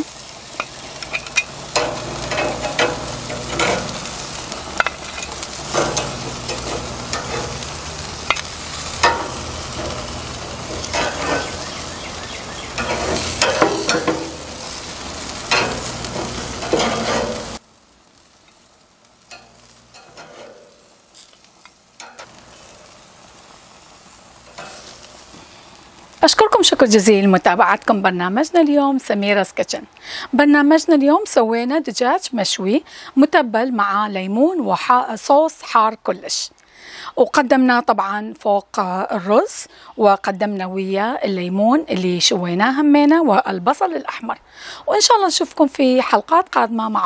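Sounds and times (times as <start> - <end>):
chicken sizzling on a grill: 0.0 - 28.4
metal tongs clicking on grate: 0.5 - 17.6, 19.2 - 23.0, 24.4 - 25.2.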